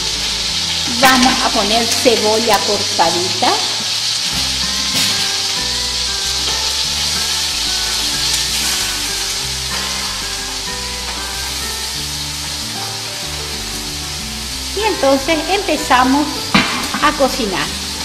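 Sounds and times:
meat sizzling in hot oil: 0:00.0 - 0:18.0
soft background music: 0:00.0 - 0:18.0.

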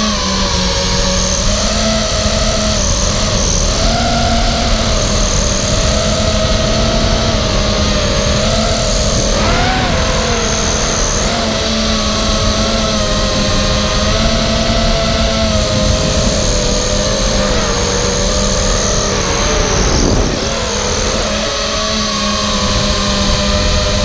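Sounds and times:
quadcopter motors buzzing: 0:00.0 - 0:24.0
wind rush: 0:02.2 - 0:24.0.

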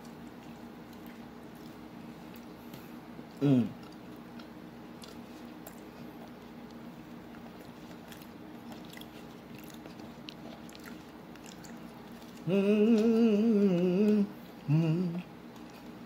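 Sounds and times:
person chewing food: 0:00.0 - 0:16.0
person humming mmm: 0:03.4 - 0:03.8, 0:12.4 - 0:15.3.

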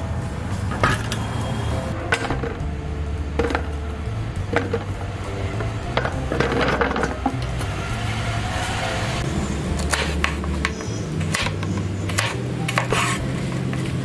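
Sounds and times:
background music with low held notes: 0:00.0 - 0:14.0
knife slicing on wooden board: 0:11.3 - 0:13.3.

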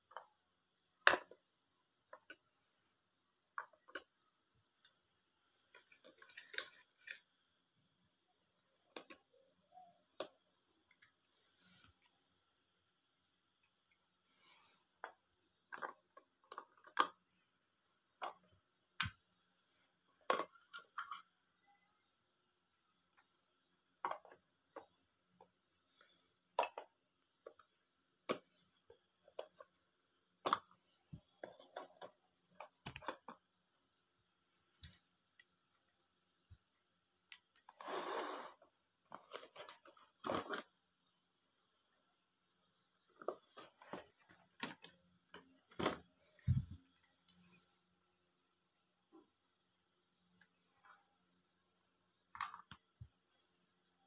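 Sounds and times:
plastic toy pots clacking: 0:15.0 - 0:17.3, 0:24.0 - 0:25.0.

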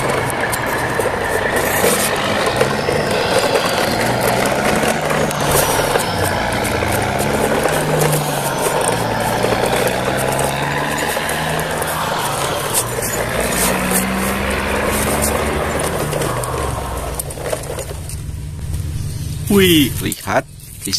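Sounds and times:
toy truck wheels rattling on concrete: 0:00.0 - 0:18.3.

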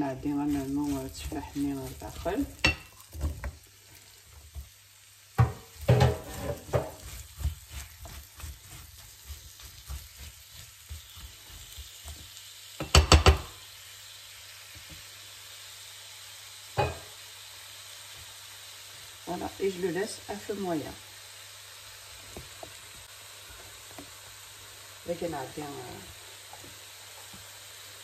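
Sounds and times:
spatula scraping a frying pan: 0:00.0 - 0:04.7, 0:05.4 - 0:12.3
food sizzling: 0:00.0 - 0:28.0
spatula knocks on pan: 0:05.4 - 0:07.0, 0:12.8 - 0:13.5.

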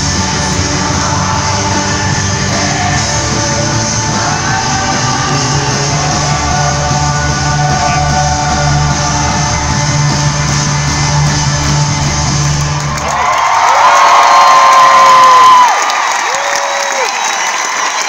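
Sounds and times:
live rock band: 0:00.0 - 0:13.3
crowd cheering: 0:00.0 - 0:18.0.

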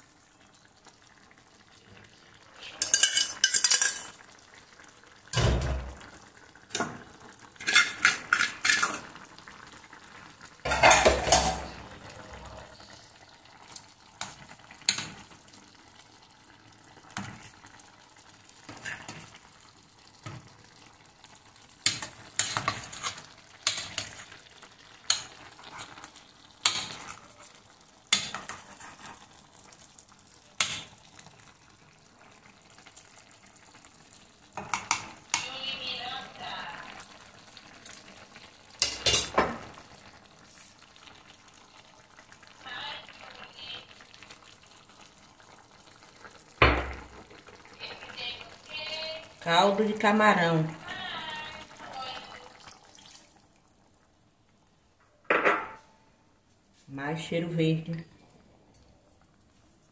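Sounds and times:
faint simmer: 0:00.0 - 0:59.9
metal spoon scraping a pan: 0:02.7 - 0:04.1, 0:07.6 - 0:09.0, 0:21.9 - 0:24.3.

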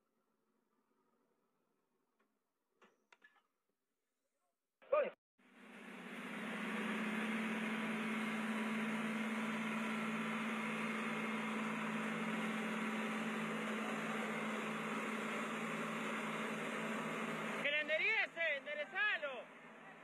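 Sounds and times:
tractor diesel engines droning: 0:05.4 - 0:20.0.

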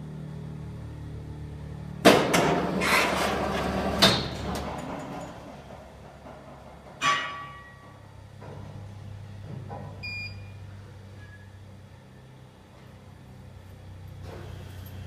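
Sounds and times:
crane metal clatter and grinding: 0:01.8 - 0:10.0
ringing metal clang: 0:07.0 - 0:08.1.

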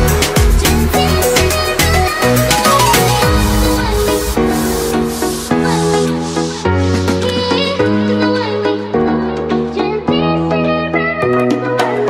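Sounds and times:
electronic dance music: 0:00.0 - 0:08.1.

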